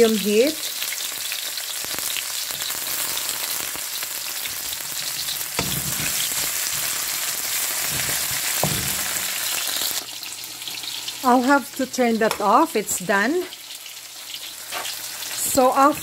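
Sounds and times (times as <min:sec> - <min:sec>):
onions sizzling in oil: 0:00.0 - 0:16.0
wooden spatula scraping a wok: 0:04.9 - 0:10.0, 0:14.3 - 0:16.0.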